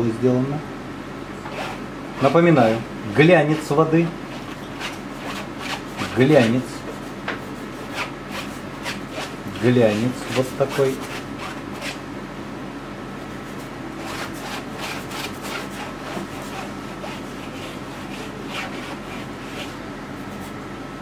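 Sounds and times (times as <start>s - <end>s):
steady low hum: 0.0s - 21.0s
paint scrubbing on canvas: 3.4s - 12.0s, 13.4s - 20.6s.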